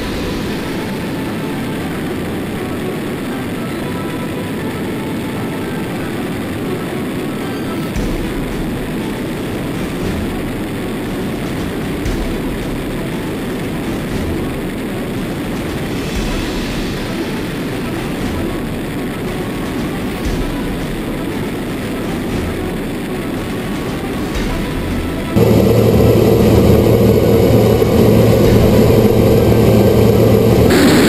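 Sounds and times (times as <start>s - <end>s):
rushing airflow buffeting camera: 7.9s - 31.0s.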